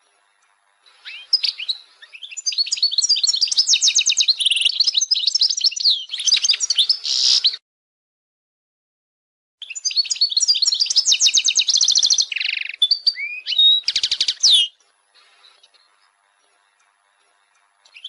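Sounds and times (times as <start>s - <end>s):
goldfinch twittering song: 0.0s - 7.6s, 9.6s - 18.0s.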